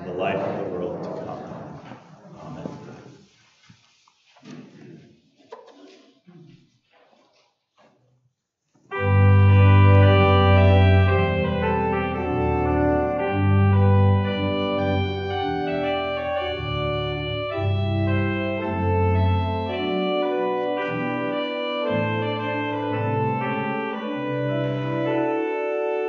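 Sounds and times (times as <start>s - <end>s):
organ playing sustained chords: 8.9s - 26.0s.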